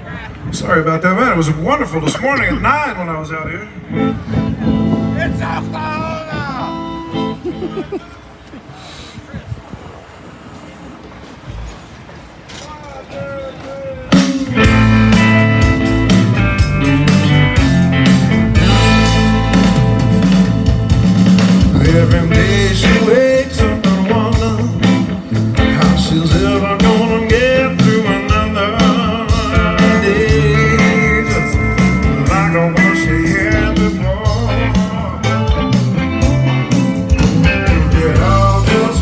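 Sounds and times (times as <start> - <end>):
blues rock band playing: 1.4 - 7.9, 14.1 - 39.0
lead guitar bending notes: 2.3 - 7.8, 14.1 - 39.0.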